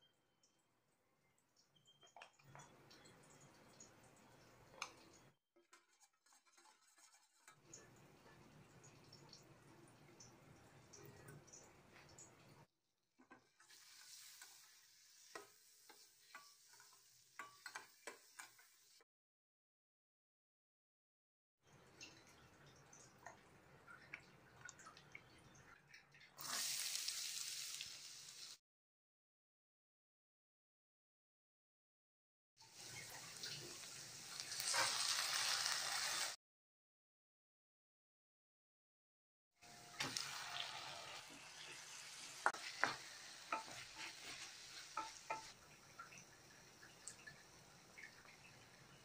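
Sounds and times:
shallots sizzling in hot oil: 0:13.4 - 0:19.0, 0:26.4 - 0:28.6, 0:32.7 - 0:36.4, 0:39.6 - 0:46.6
spoon knocking and scraping steel pan: 0:15.3 - 0:18.7, 0:42.4 - 0:45.6
oil ticking as it heats: 0:45.0 - 0:49.0.

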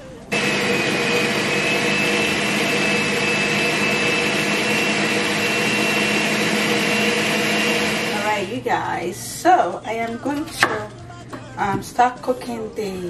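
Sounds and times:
blender motor whine: 0:00.3 - 0:08.5.

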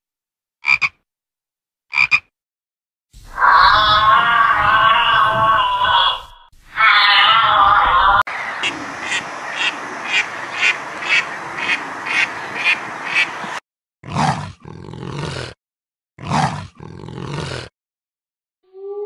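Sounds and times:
longer animal calls: 0:03.2 - 0:13.4
hissy background: 0:08.3 - 0:13.6.

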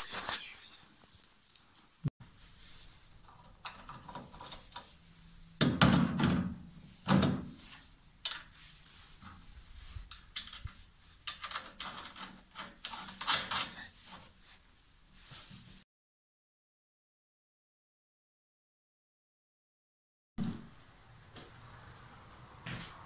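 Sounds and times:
metal clicks and rattles: 0:03.2 - 0:04.9, 0:10.1 - 0:13.8.

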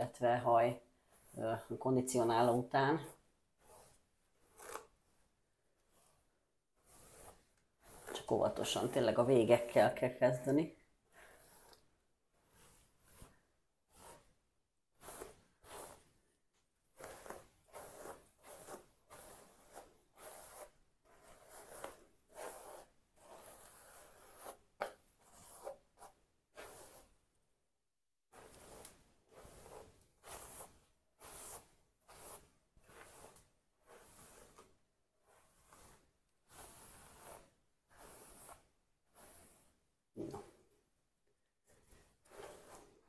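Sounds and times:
hairbrush rubbing through hair: 0:00.2 - 0:04.9, 0:05.9 - 0:11.8, 0:15.0 - 0:16.1, 0:17.0 - 0:27.1, 0:28.4 - 0:34.8, 0:35.4 - 0:39.8, 0:41.9 - 0:43.0.

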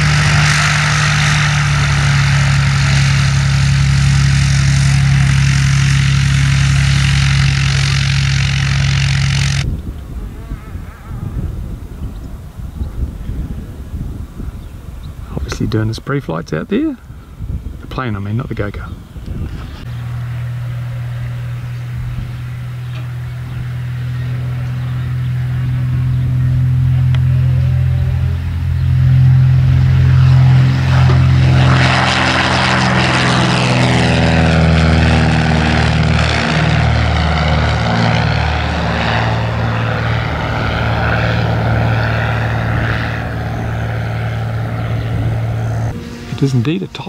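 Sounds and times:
propeller plane engine droning: 0:00.0 - 0:47.0.

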